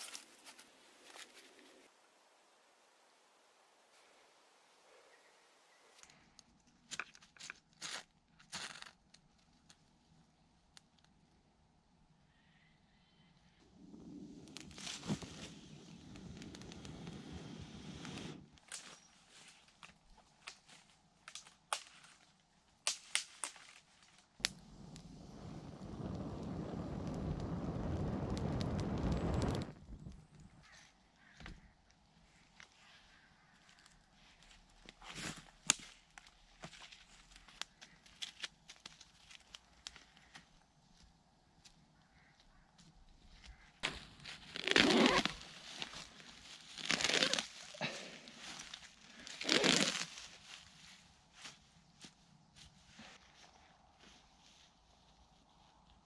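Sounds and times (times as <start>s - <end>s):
dense rushing fire crackle: 13.6s - 18.6s, 24.4s - 30.6s
campfire popping and snapping: 13.8s - 18.8s, 24.4s - 30.5s
dry grass tearing and rustling: 35.0s - 40.3s, 43.8s - 51.6s.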